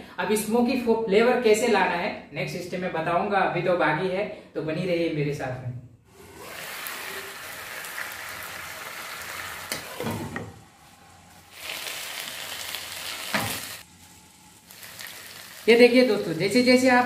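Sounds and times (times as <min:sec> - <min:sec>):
chicken sizzling in oil: 0:06.5 - 0:10.0, 0:11.5 - 0:17.0.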